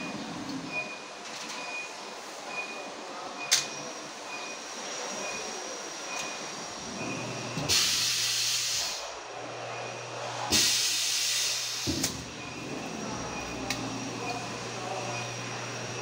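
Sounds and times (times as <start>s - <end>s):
air hissing: 7.7s - 9.1s, 10.5s - 12.2s.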